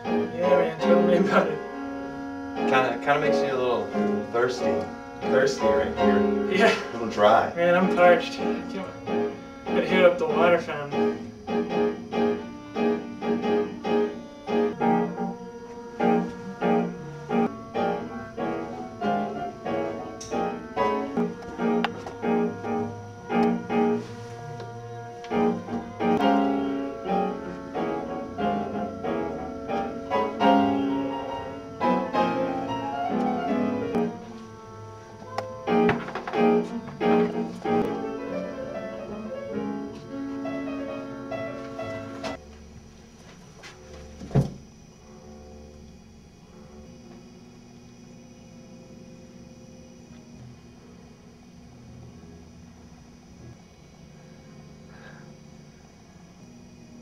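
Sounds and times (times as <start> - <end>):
piano music: 0.0 - 42.7.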